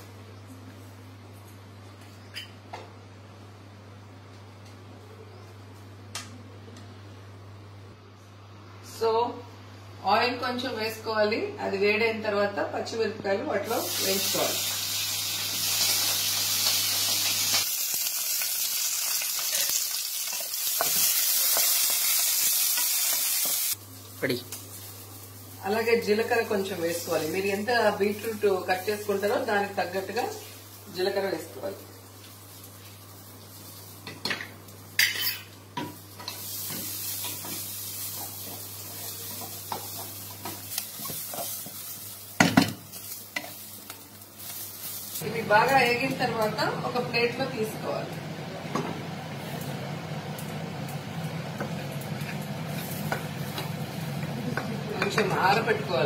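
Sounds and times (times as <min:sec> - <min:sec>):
chillies sizzling in oil: 0:11.8 - 0:56.0.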